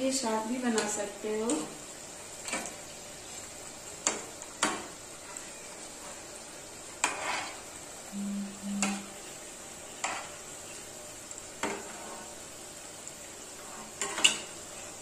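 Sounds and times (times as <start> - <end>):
deep-frying sizzle: 0.0 - 15.0
spatula scraping a pan: 4.0 - 7.8, 9.9 - 10.8, 11.6 - 12.4, 13.5 - 15.0.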